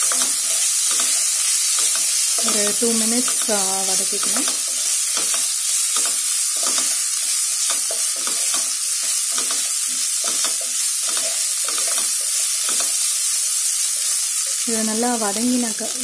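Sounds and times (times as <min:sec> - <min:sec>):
onions sizzling in oil: 0:00.0 - 0:16.0.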